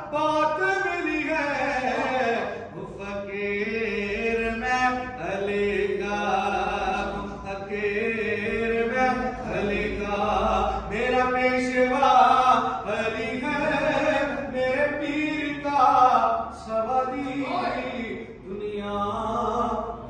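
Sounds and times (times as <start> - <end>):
man chanting devotional song: 0.0 - 20.0.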